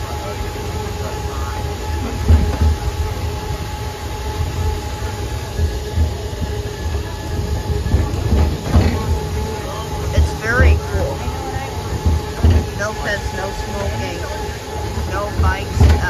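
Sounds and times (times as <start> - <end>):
faint steady whine: 0.0 - 16.0
tram rumbling: 0.0 - 16.0
low thumps: 5.6 - 16.0.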